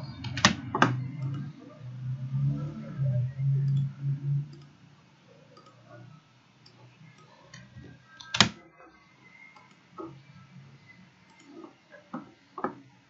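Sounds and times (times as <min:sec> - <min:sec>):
low pulsing hum: 0:00.0 - 0:06.5
computer mouse clicks: 0:00.2 - 0:01.7, 0:03.6 - 0:03.9, 0:04.5 - 0:04.8, 0:05.5 - 0:08.6, 0:09.5 - 0:10.2, 0:11.2 - 0:12.8.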